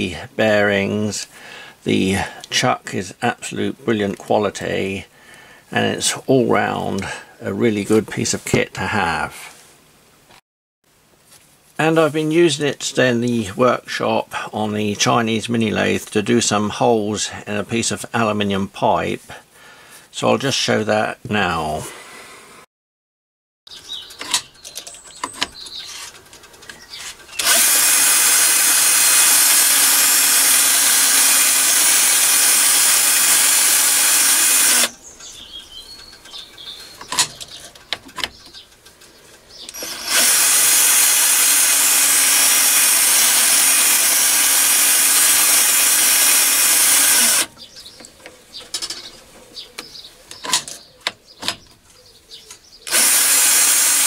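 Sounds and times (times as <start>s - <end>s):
clicks and handling: 24.1s - 27.6s, 35.2s - 39.9s, 47.5s - 52.7s
drill drilling into metal pipe: 27.4s - 35.0s, 39.7s - 47.5s, 52.9s - 54.0s.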